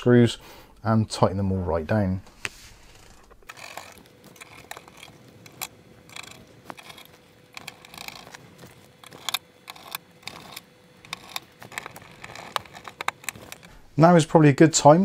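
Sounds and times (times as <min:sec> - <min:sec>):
screwdriver clicking on metal: 0:03.4 - 0:13.8.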